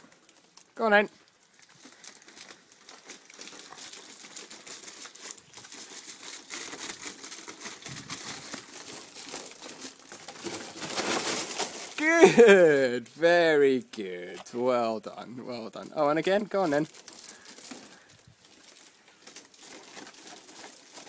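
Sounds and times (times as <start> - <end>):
foil duct crinkling: 0.0 - 12.9, 15.6 - 21.0.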